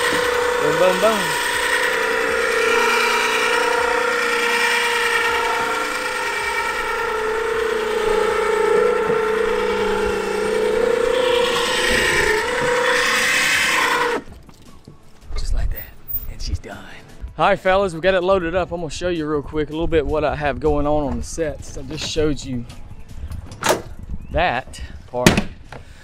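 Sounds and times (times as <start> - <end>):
electric winch motor whining: 0.0 - 14.4.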